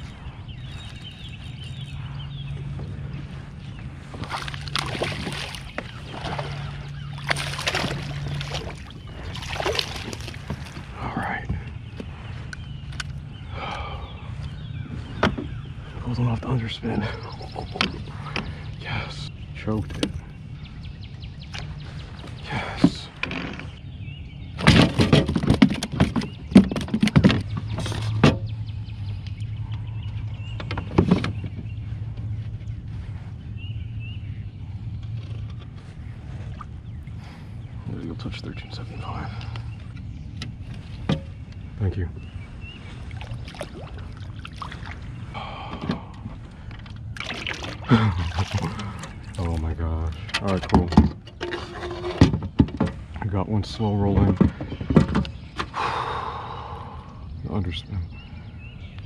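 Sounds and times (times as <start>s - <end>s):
water splashing around kayak: 0.0s - 16.1s, 38.9s - 49.6s
steady low hum: 0.0s - 59.0s.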